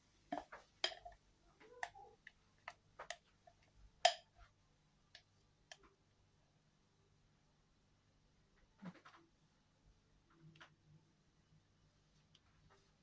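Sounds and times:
spatula tapping glass bowl: 0.3 - 1.2, 4.0 - 4.3.

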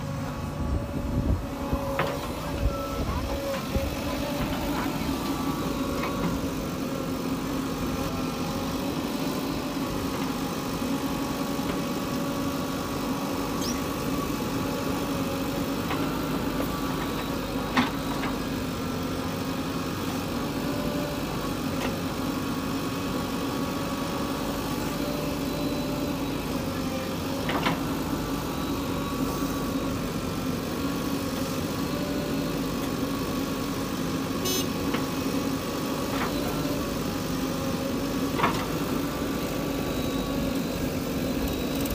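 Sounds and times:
diesel engine running: 0.0 - 41.9
backhoe digging soil: 23.8 - 41.9.

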